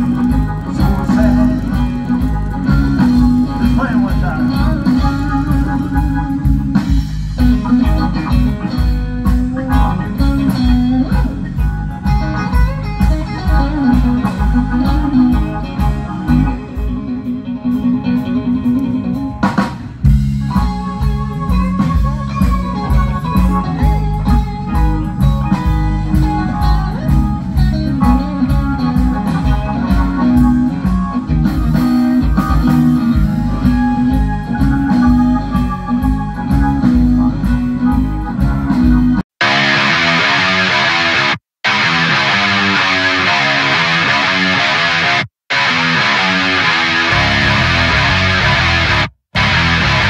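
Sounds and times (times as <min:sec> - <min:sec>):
blues-rock band playing: 0:00.0 - 0:50.0
electric guitar: 0:00.0 - 0:50.0.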